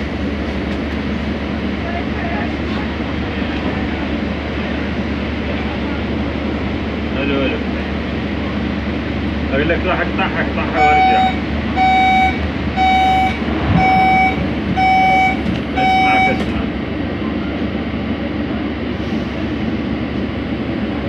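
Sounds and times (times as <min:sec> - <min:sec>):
train hum: 0:00.0 - 0:21.0
door-closing warning beeps: 0:10.8 - 0:16.6.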